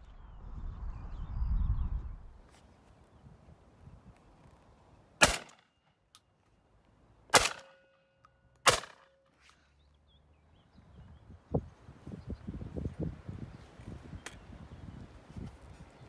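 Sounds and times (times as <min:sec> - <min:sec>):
shotgun shots: 0:05.2 - 0:05.6, 0:07.3 - 0:07.8, 0:08.6 - 0:09.1.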